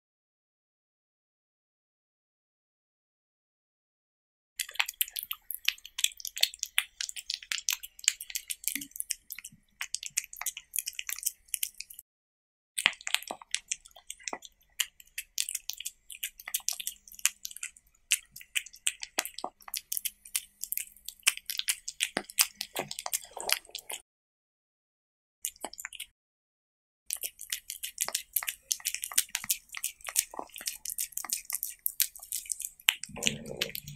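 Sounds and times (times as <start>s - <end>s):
cat eating with wet smacking: 4.6s - 12.0s, 12.8s - 24.0s, 25.5s - 26.1s, 27.1s - 33.9s.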